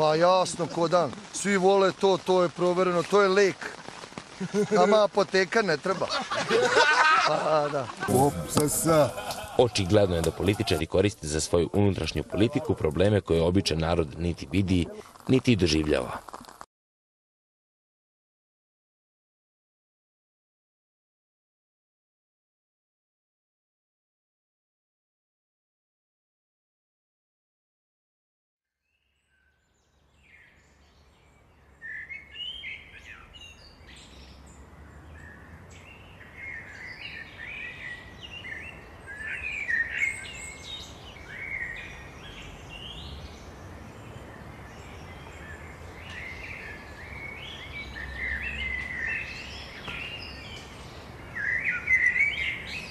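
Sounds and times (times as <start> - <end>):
birds chirping and singing: 28.9 - 52.9.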